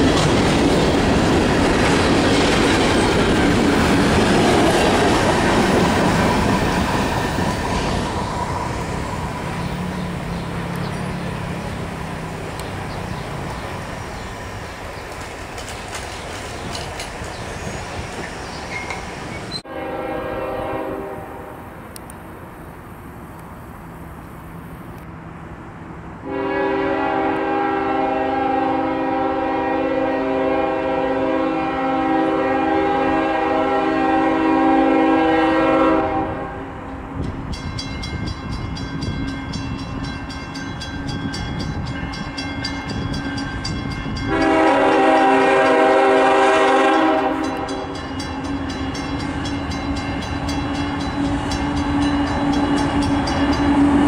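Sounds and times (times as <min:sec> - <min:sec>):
train running noise: 0:00.0 - 0:54.0
locomotive air horn blasts: 0:19.6 - 0:21.6, 0:26.2 - 0:36.8, 0:44.2 - 0:54.0.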